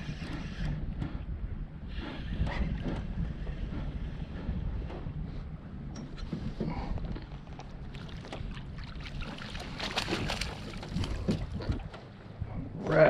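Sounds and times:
wind rumble on microphone: 0.0 - 13.0
water splashing and dripping: 7.5 - 12.0.

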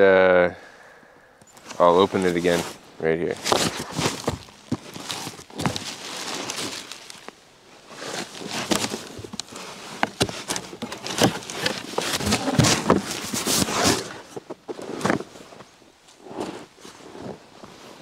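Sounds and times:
leather jacket rustling: 1.6 - 15.6
cardboard box rustling and knocking: 3.4 - 7.2, 8.0 - 15.4.

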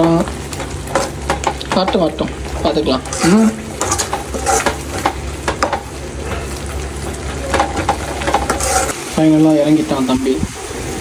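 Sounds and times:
low frying sizzle: 0.0 - 11.0
spoon scraping a pot: 3.0 - 5.8, 7.5 - 9.0.

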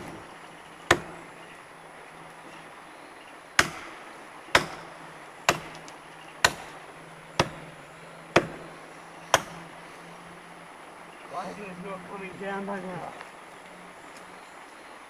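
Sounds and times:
axe chopping tree trunk: 0.8 - 1.2, 3.6 - 7.7, 8.3 - 8.7, 9.3 - 9.6.

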